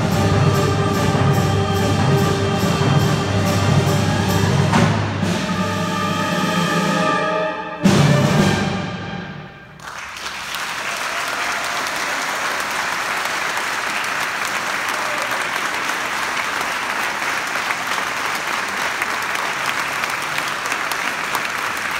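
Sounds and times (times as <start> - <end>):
audience applauding: 9.8 - 21.9.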